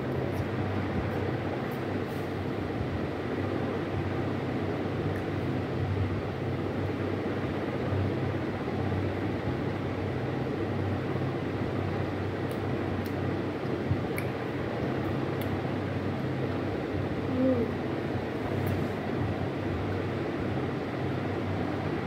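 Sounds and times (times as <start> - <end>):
cooling fan whirring: 0.0 - 22.0.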